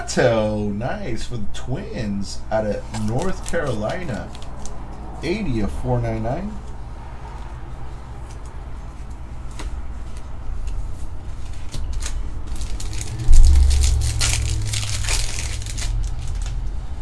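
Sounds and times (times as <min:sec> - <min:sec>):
plastic crinkling: 0:02.9 - 0:04.8, 0:11.3 - 0:16.8
dull low thump: 0:13.1 - 0:15.0.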